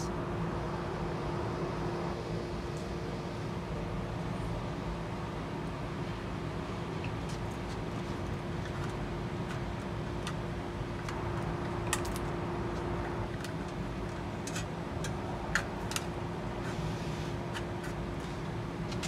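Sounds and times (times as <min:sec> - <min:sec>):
steady background hum: 0:00.0 - 0:19.0.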